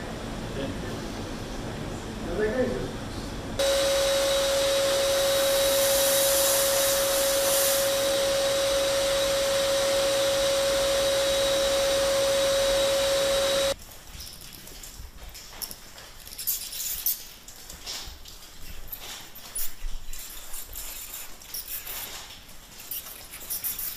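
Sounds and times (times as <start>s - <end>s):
drone propellers hissing: 3.6s - 13.8s.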